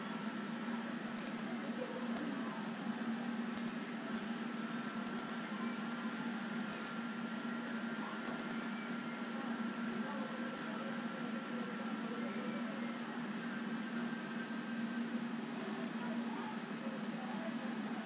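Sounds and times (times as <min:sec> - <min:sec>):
computer mouse clicks: 0:01.0 - 0:01.5, 0:02.2 - 0:02.4, 0:03.6 - 0:05.4, 0:06.7 - 0:07.0, 0:08.2 - 0:08.7.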